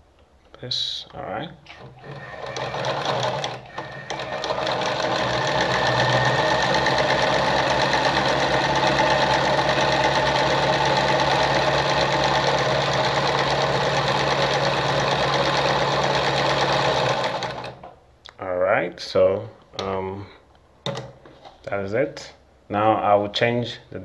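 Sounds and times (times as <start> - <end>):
sewing machine motor hum: 1.7 - 17.9
sewing machine clatter: 1.8 - 17.9.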